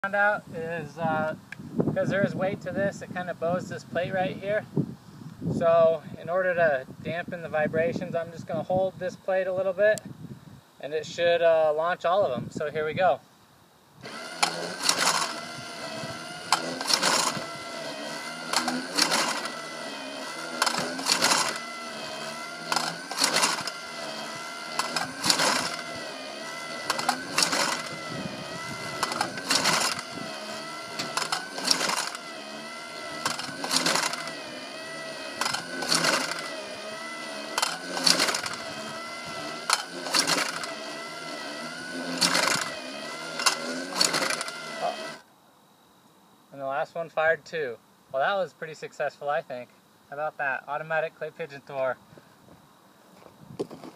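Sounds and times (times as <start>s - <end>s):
launcher motor whirring: 14.0s - 45.3s.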